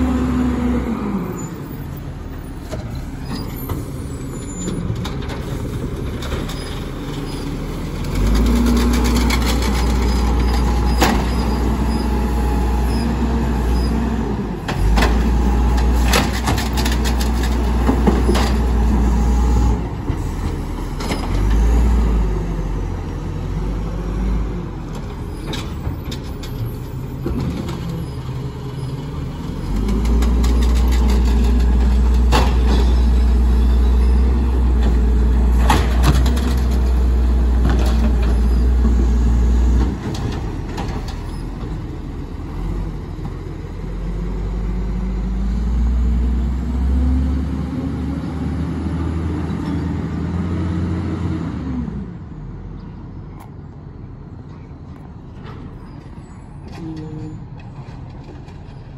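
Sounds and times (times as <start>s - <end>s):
garbage truck engine revving: 5.4s - 24.8s
knocks and bangs of carts: 29.8s - 33.1s.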